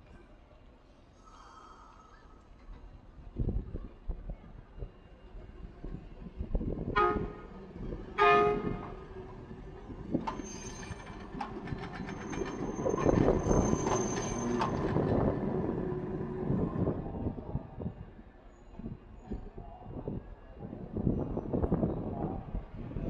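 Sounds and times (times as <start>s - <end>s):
streetcar horn: 6.9s - 9.1s
wheels clicking over track: 10.2s - 15.8s
high wheel squeal: 10.3s - 15.2s.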